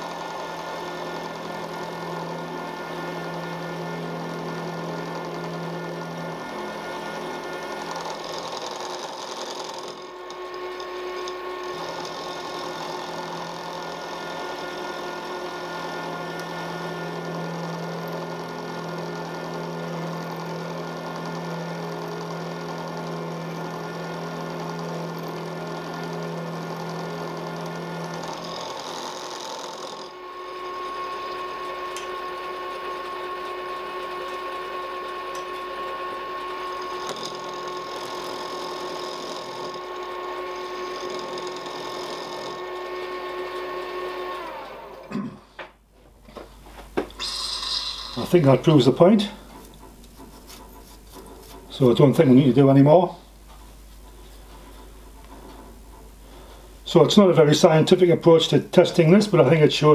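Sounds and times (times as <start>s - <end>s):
metal cutting noise: 0.0s - 45.1s, 47.1s - 53.0s
milling machine whine: 0.0s - 59.9s.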